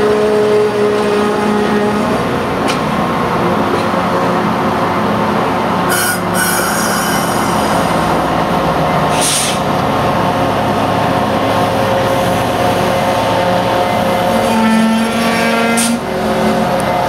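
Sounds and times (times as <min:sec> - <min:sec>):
train cars rolling past: 0:00.0 - 0:17.0
short hisses: 0:09.1 - 0:09.6.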